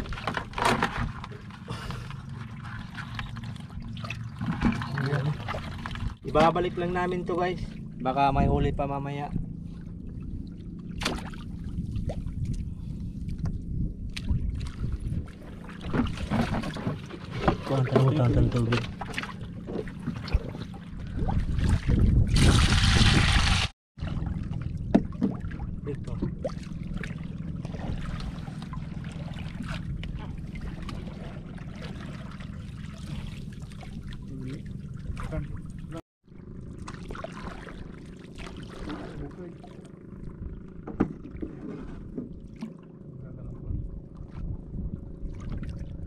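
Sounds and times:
water moving around boat: 0.0s - 46.0s
steady low rumble: 1.1s - 16.3s, 18.2s - 46.0s
wind on microphone: 11.6s - 16.8s, 20.2s - 23.7s, 43.3s - 46.0s.

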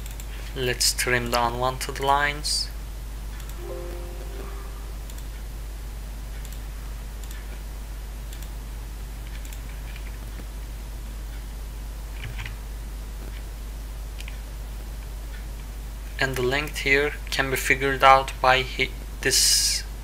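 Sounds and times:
two-tone computer alert chime: 3.6s - 5.1s.

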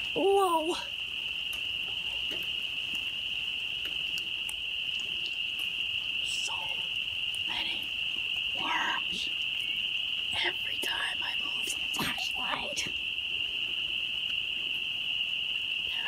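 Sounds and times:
frogs calling: 0.0s - 16.0s.

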